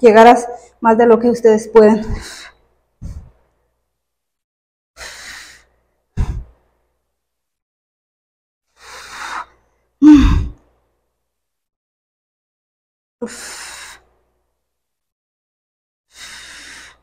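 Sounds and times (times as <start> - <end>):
woman breathing hard: 2.1 - 3.4, 5.0 - 6.6, 8.7 - 10.6, 13.2 - 14.2, 16.1 - 17.0.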